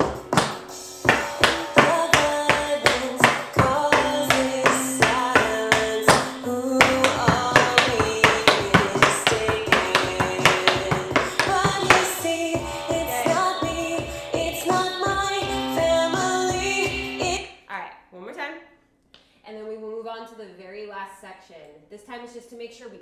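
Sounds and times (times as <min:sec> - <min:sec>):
tap shoes on wooden floor: 0:00.0 - 0:13.8
rock song with singing and guitar: 0:01.2 - 0:17.4.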